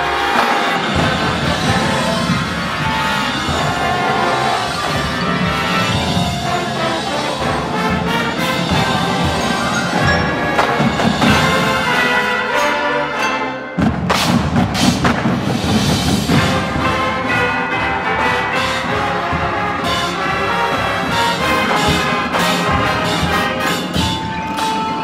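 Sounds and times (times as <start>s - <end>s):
sharp percussion hits: 0.0s - 12.7s, 13.8s - 25.0s
marching band playing: 0.0s - 25.0s.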